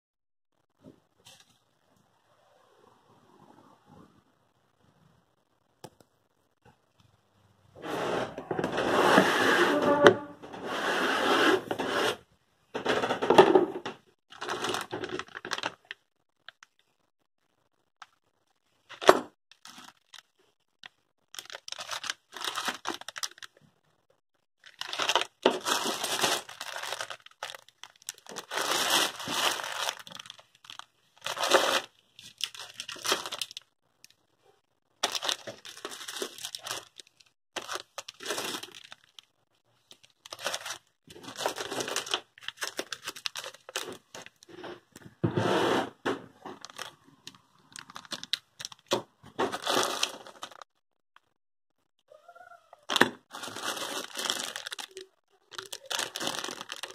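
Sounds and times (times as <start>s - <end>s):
plastic bags crinkling: 14.3s - 17.0s, 18.8s - 23.7s, 24.6s - 34.2s, 35.0s - 44.6s, 46.4s - 50.7s, 52.8s - 56.9s.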